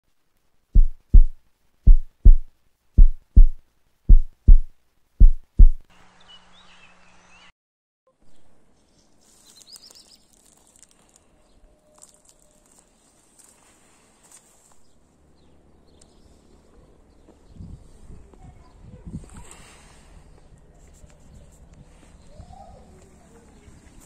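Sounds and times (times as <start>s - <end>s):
heartbeat thumps: 0.8s - 5.9s.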